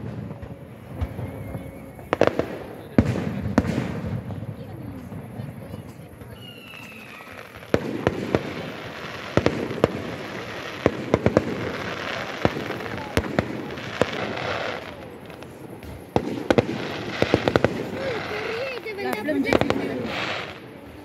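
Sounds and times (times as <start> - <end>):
fireworks bangs and pops: 0.0 - 21.0
hiss of burning shells: 5.1 - 21.0.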